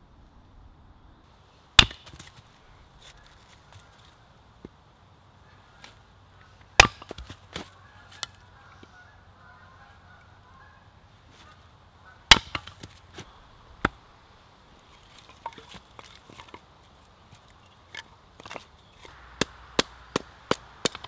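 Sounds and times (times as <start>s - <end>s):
axe chopping logs: 1.8s - 2.4s, 6.6s - 8.4s, 12.2s - 14.0s, 15.2s - 16.6s, 17.2s - 21.0s.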